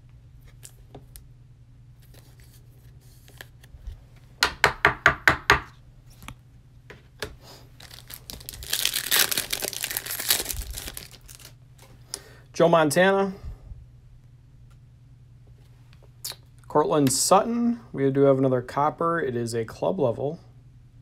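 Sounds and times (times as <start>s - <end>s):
foil wrapper tearing and crinkling: 7.8s - 11.6s.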